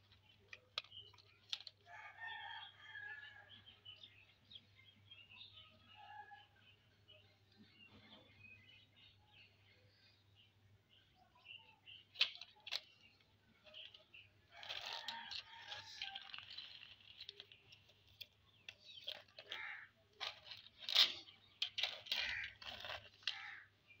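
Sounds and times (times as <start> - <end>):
plastic toy cars clacking: 0.0 - 1.9, 11.4 - 24.0
toy car scraping on concrete: 13.7 - 23.6.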